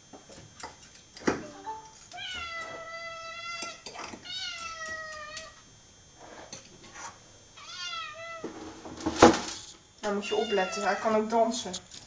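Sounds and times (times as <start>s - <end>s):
cat meowing: 2.1s - 5.6s, 7.6s - 8.5s, 10.2s - 11.2s.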